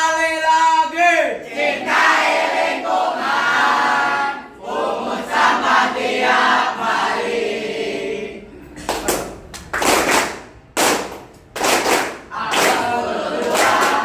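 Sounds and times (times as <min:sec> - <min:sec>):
students chanting in unison: 0:01.4 - 0:08.5, 0:12.3 - 0:14.0.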